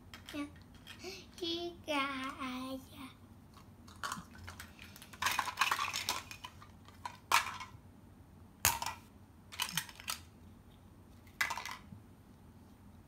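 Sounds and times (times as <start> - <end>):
plastic toy food clattering: 3.6 - 7.8, 8.6 - 10.3, 11.3 - 11.9.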